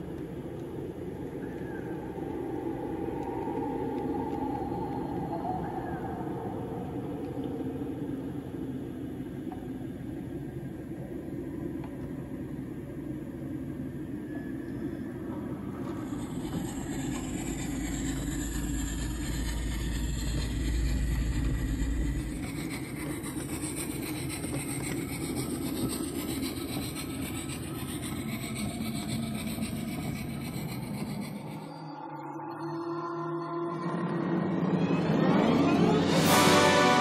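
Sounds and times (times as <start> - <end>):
noisy ambience: 0.0 - 37.0
deep rumble: 15.2 - 31.4.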